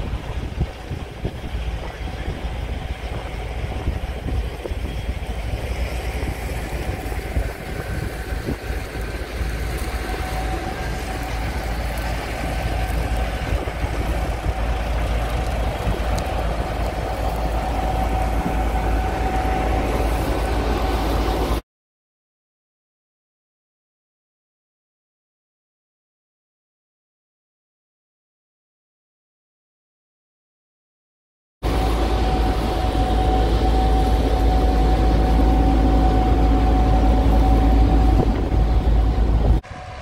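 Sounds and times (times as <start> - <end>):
combine engine and threshing drone: 0.0 - 21.6, 31.6 - 40.0
thin whine: 0.0 - 21.6, 31.6 - 40.0.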